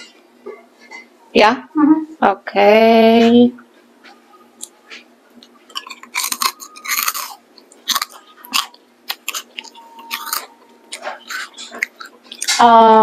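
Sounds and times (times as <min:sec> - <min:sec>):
person chewing crunchy snack: 0:05.4 - 0:12.6.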